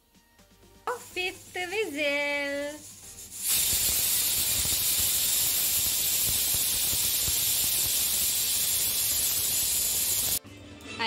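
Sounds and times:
pressure cooker whistle hissing: 3.4s - 10.4s.

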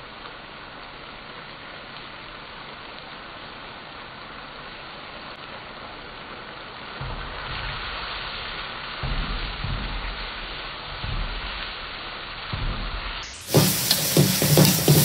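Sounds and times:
food sizzling in a wok: 0.0s - 15.0s
wok tossing rumbles: 7.0s - 15.0s.

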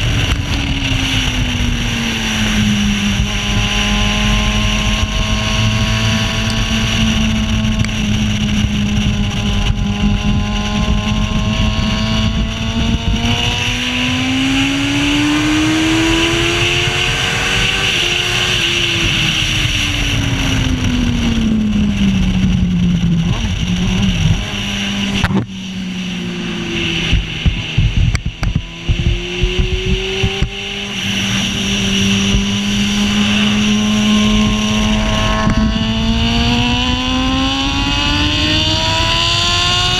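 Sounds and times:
racing engine running hard: 0.0s - 39.9s
rushing wind: 0.0s - 39.9s
engine crackles and knocks: 4.9s - 13.4s, 19.8s - 25.5s, 27.0s - 31.3s.

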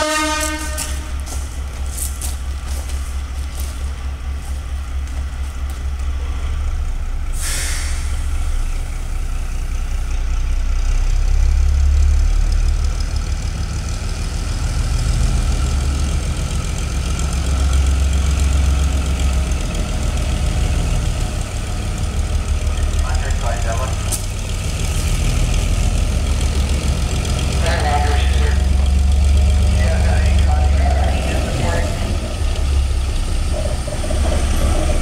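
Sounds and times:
diesel locomotive engine rumbling: 0.0s - 35.0s
brief hiss: 7.4s - 8.7s.

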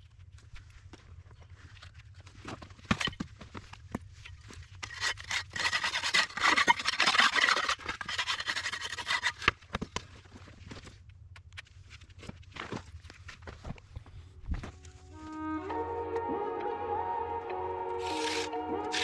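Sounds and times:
board scraping wet concrete: 4.8s - 9.5s, 18.0s - 19.0s.

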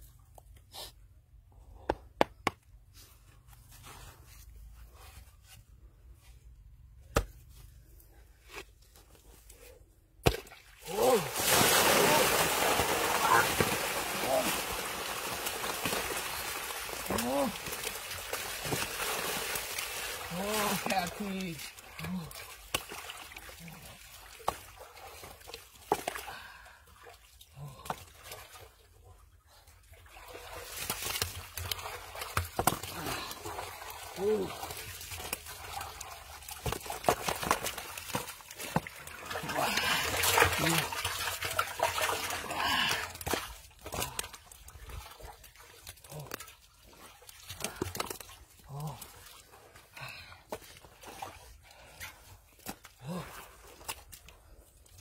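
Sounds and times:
hands squelching in wet mud: 30.1s - 55.0s.

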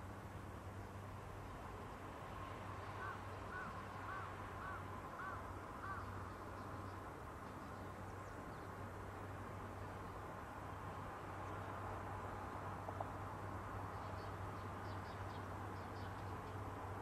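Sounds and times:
crow cawing: 3.0s - 6.1s.

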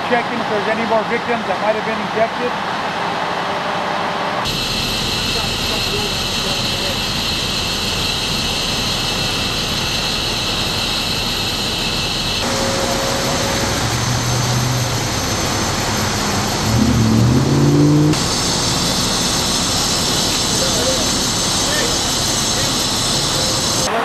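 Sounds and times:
vehicle engines idling: 0.0s - 24.0s
low humming tones: 12.4s - 23.9s.

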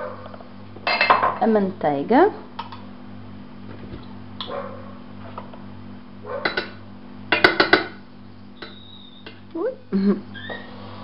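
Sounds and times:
steady low hum: 0.0s - 11.0s
utensils clinking on metal pot: 0.8s - 1.4s, 6.4s - 8.0s.

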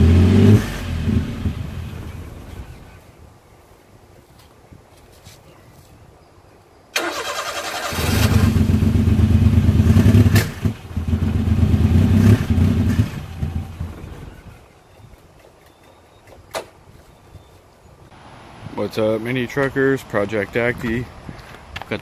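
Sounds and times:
starter motor cranking: 7.0s - 8.5s
truck engine running: 8.1s - 14.5s.

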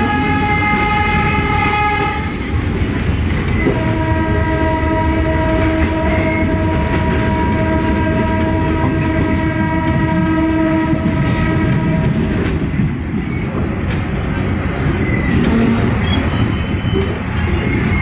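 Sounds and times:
train horn long tone: 0.0s - 2.6s, 3.6s - 12.3s
moving train rumble: 0.0s - 18.0s.

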